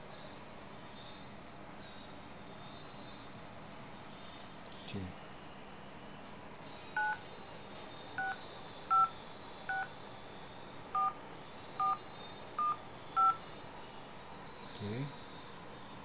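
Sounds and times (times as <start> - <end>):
phone keypad dialing beeps: 7.0 - 7.2, 8.2 - 9.1, 11.0 - 11.2, 11.8 - 12.0, 12.6 - 13.4.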